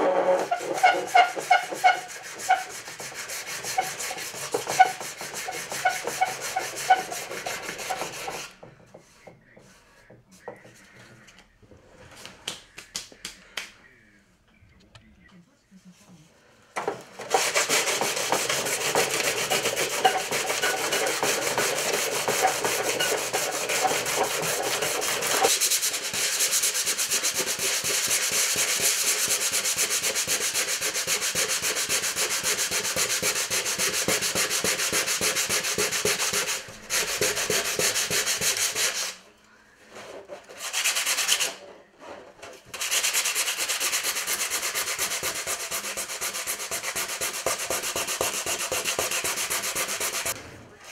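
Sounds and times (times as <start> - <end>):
sandpaper rasping on wood: 0.0 - 8.6, 17.2 - 39.2, 40.4 - 41.6, 42.7 - 50.4.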